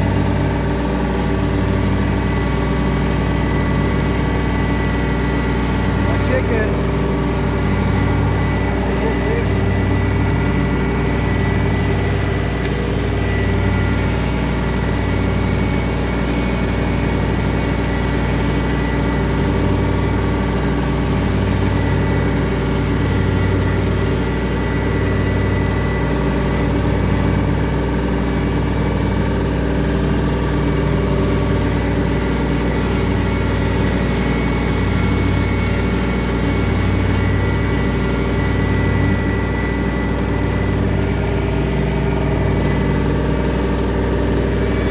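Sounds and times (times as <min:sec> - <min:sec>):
tractor engine droning: 0:00.0 - 0:44.9.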